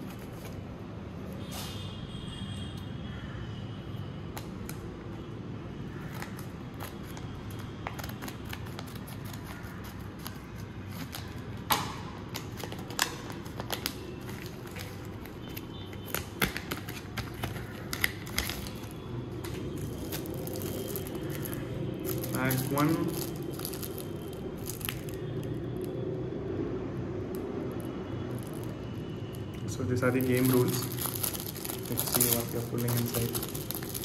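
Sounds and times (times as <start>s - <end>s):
card wrapper crackling: 6.1s - 25.6s, 29.4s - 34.0s.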